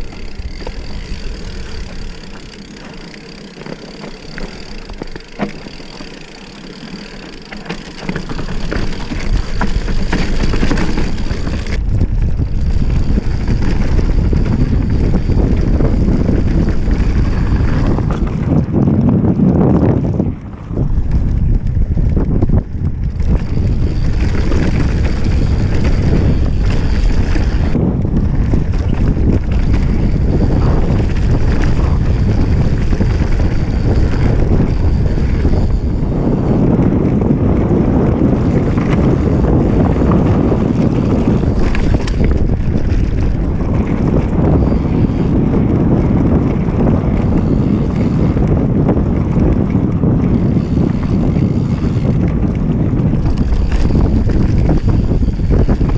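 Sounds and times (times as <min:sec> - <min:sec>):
tyres rumbling over gravel: 0:00.0 - 0:55.9
wind buffeting microphone: 0:00.0 - 0:55.9.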